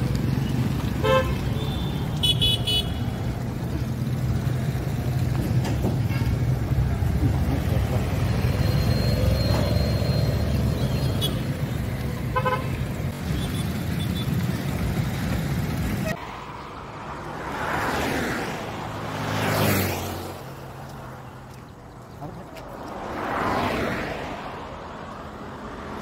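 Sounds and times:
motorcycle engine and road rumble: 0.0s - 17.8s
vehicles passing: 0.0s - 26.0s
vehicle horn tooting: 1.0s - 3.1s, 12.3s - 14.3s.

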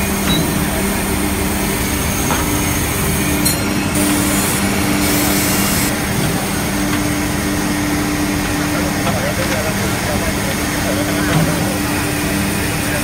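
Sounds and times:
band saw humming: 0.0s - 8.4s.

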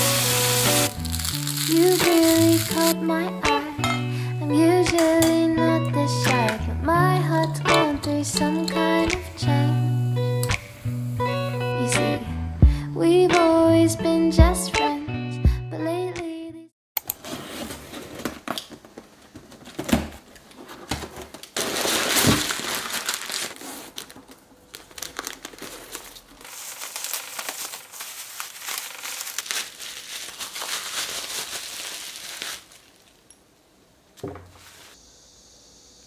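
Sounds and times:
packing tape pulled off box: 0.0s - 3.0s, 20.9s - 33.2s
wrapping paper rustling: 0.0s - 3.0s, 20.5s - 33.3s.

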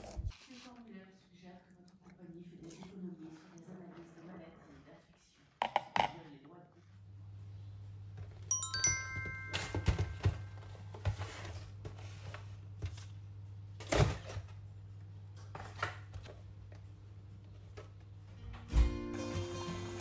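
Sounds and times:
bell-like chime: 8.5s - 10.7s.

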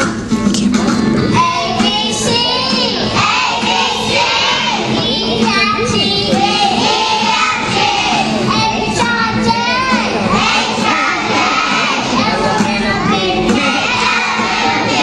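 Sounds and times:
girl singing into a microphone: 1.3s - 3.3s, 12.1s - 14.8s
young children singing: 1.3s - 15.0s.

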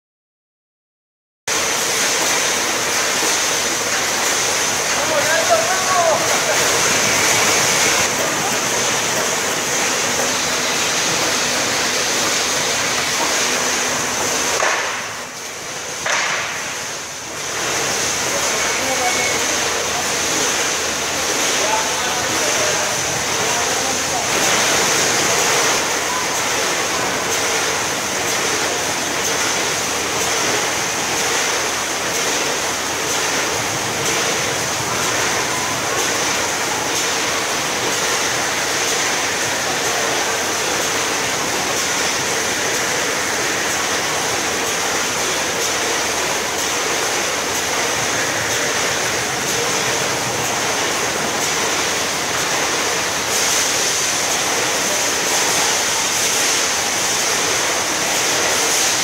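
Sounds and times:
case packer machine whirring: 1.5s - 14.9s.

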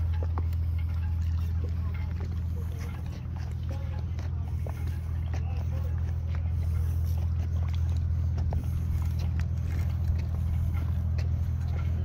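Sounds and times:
low engine drone: 0.0s - 12.0s.

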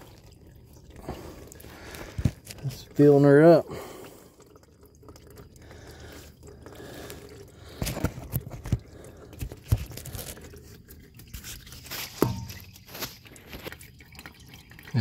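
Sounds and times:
fluid dribbling into plastic tub: 0.0s - 15.0s
handling knocks and scrapes: 11.3s - 13.7s.

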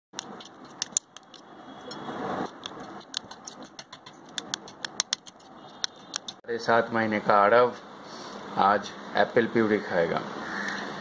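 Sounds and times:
spoon wet scraping: 0.1s - 6.4s.

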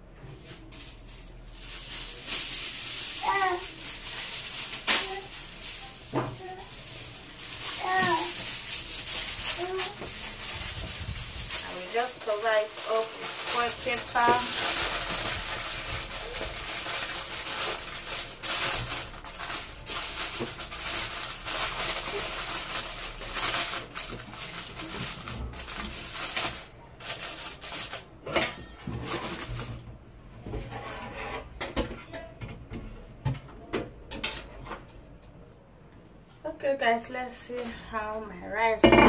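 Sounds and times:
aluminium foil crinkling: 0.2s - 29.9s.

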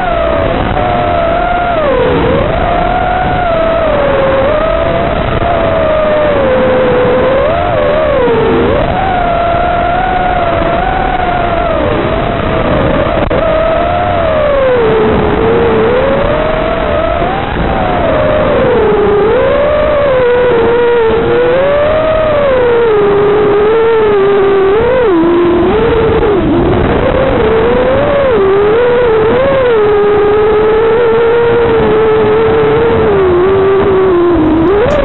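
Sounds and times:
quadcopter motors whining: 27.5s - 35.0s.

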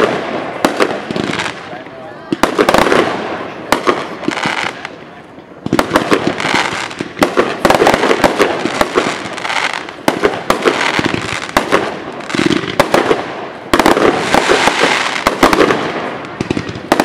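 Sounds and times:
fireworks bangs: 0.0s - 17.0s
fireworks hiss: 5.6s - 17.0s.

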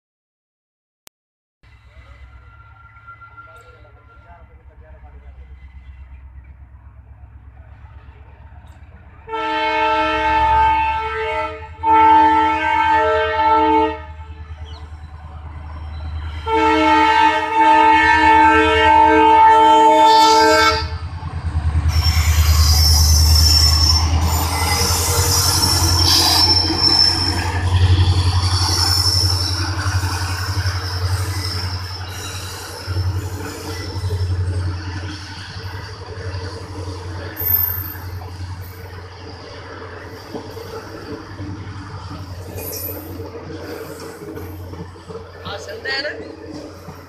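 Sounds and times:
train rumbling on rails: 1.6s - 47.0s
high wheel squeal: 2.0s - 4.6s, 21.9s - 34.6s, 35.3s - 41.2s, 42.4s - 44.8s
locomotive horn blasts: 9.3s - 14.5s, 16.4s - 21.0s.

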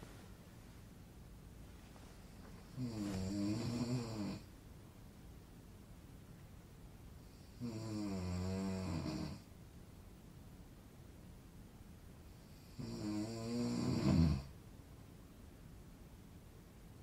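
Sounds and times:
man snoring: 2.7s - 4.5s, 7.4s - 9.4s, 12.5s - 14.5s.

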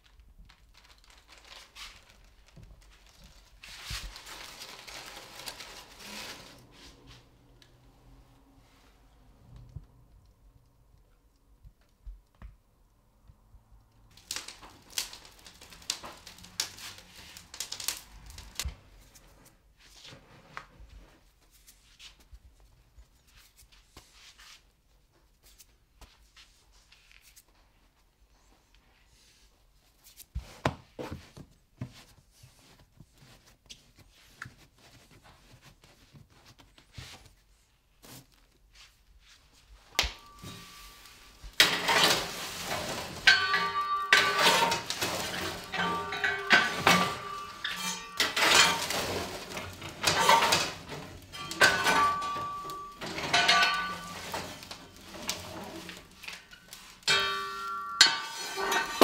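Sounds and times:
wicker baskets knocking and rustling: 0.0s - 7.2s, 14.1s - 19.1s, 39.5s - 59.0s.

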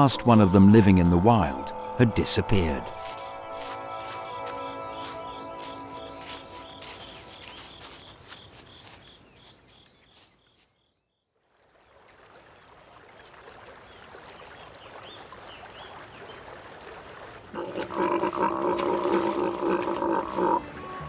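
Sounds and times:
deer bellowing: 17.6s - 20.7s.

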